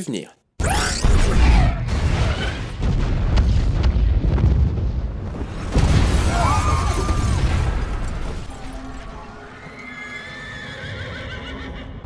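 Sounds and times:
rumbling bomb blast: 1.0 - 8.0.

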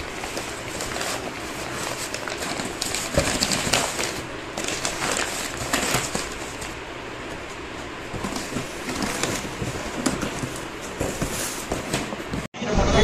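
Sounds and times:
packing paper crinkling: 0.0 - 6.8.

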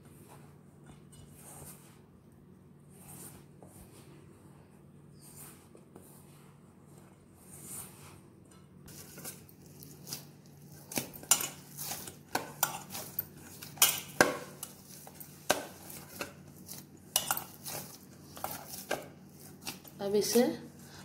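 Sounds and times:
dough knocking in metal bowl: 13.7 - 16.4.

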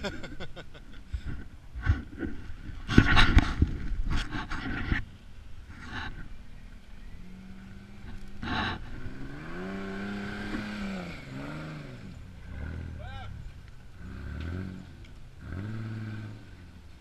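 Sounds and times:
truck engine revving under load: 7.1 - 16.9.

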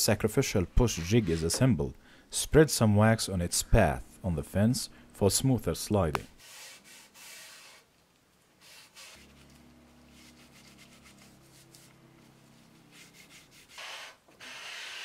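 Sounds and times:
low steady hum: 0.1 - 6.4, 9.2 - 13.6.

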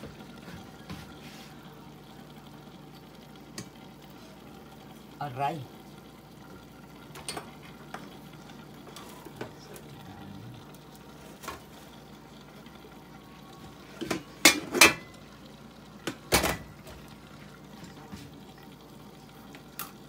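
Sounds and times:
lid and utensil clanking on pot: 14.0 - 15.1.

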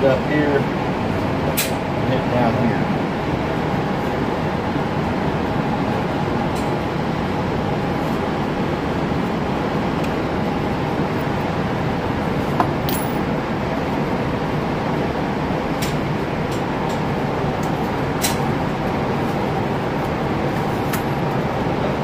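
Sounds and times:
metallic clicks and clinks: 12.6 - 13.2.

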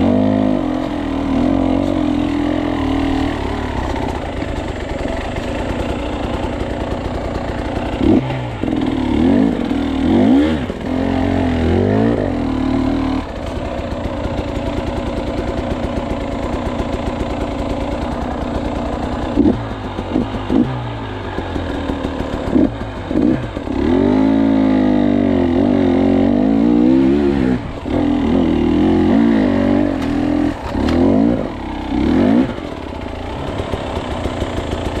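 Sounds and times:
motorcycle engine idling and revving: 0.0 - 35.0.

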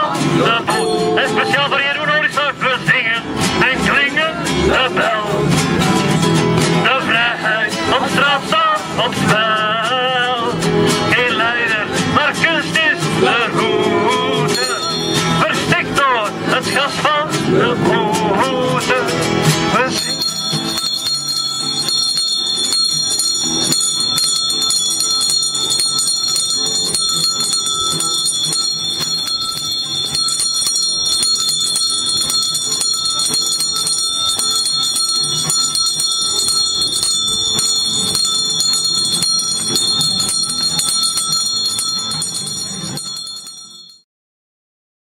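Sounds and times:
bells ringing: 0.6 - 4.5, 14.3 - 16.2, 19.1 - 44.0.

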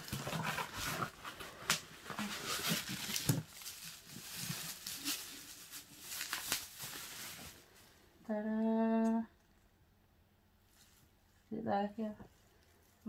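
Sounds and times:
bubble wrap rustling and crackling: 0.0 - 8.0.

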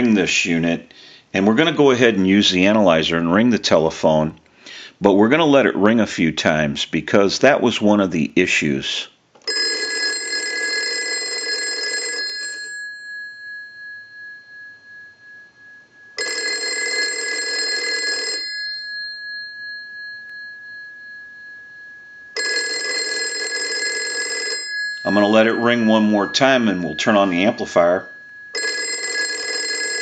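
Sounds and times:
telephone bell ringing: 9.5 - 21.7, 22.3 - 30.0.

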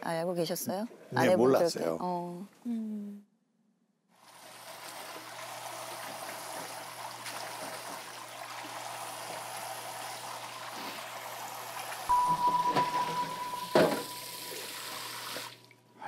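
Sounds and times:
tap running into sink: 12.5 - 14.7.

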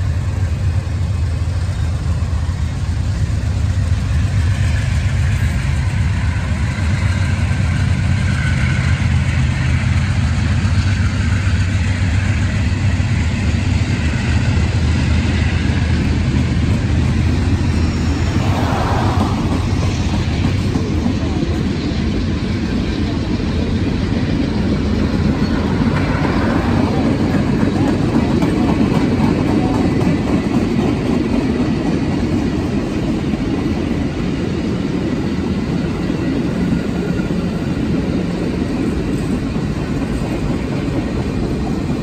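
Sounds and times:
train wheels rumbling on rails: 0.0 - 42.0
car passing: 17.2 - 20.9.

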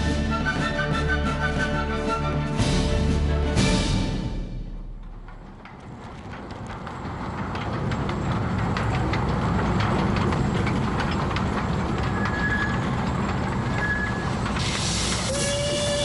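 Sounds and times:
train rumbling on track: 0.0 - 16.0
wheels clacking over rail joints: 2.5 - 16.0
high wheel squeals: 11.1 - 16.0.

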